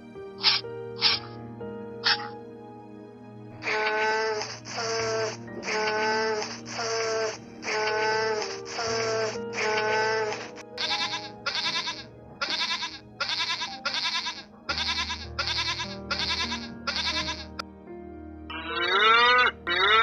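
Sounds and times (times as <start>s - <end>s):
background music with low notes: 0.0s - 20.0s
young goat bleating: 7.7s - 17.5s.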